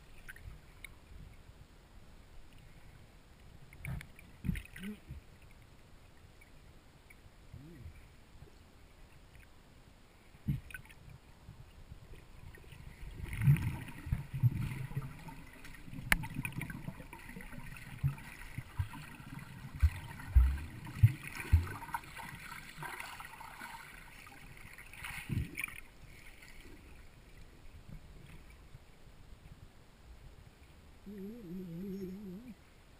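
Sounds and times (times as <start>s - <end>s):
underwater sloshing and bubbling: 0.0s - 32.9s
low underwater thumps: 19.7s - 22.0s.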